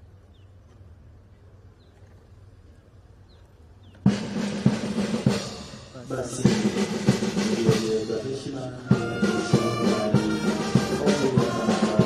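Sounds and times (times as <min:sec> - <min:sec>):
snare drum playing: 0:04.1 - 0:08.2, 0:08.9 - 0:12.0.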